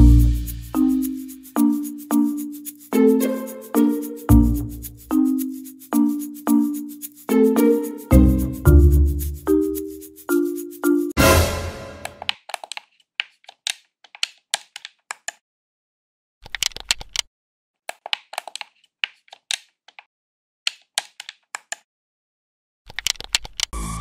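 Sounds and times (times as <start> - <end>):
music chord: 11.2 - 12.2
keys and buttons clicking: 16.4 - 17.3, 22.9 - 23.7.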